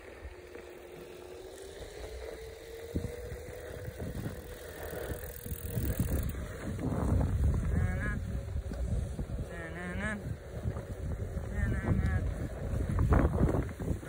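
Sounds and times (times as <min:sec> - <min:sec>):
faint steady hum: 0:00.0 - 0:14.0
cloth rubbing microphone: 0:03.8 - 0:14.0.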